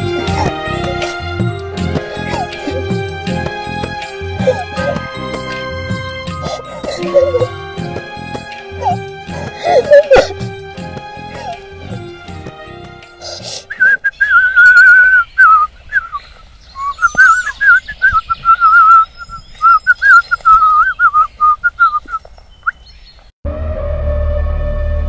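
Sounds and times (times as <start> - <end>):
music: 0.0 - 13.8, 23.4 - 25.0
faint birdsong: 13.2 - 23.3
man whistling a tune: 13.7 - 16.2, 16.8 - 22.2.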